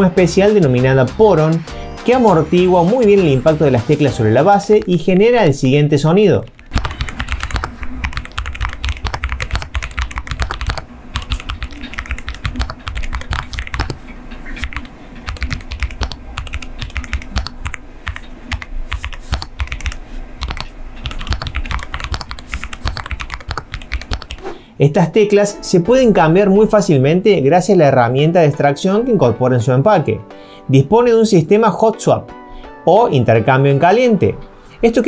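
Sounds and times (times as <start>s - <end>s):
fast typing on mechanical keyboard: 6.4s - 24.5s.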